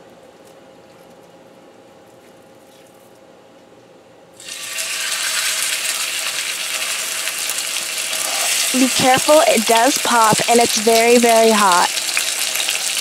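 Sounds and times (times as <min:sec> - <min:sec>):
faint steady hum: 0:00.0 - 0:13.0
meat sizzling in hot oil: 0:04.4 - 0:13.0.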